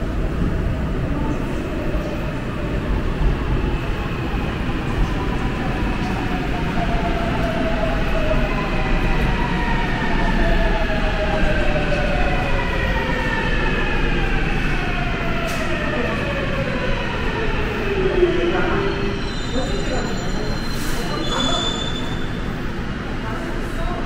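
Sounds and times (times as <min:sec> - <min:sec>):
train rumbling: 0:00.0 - 0:24.0.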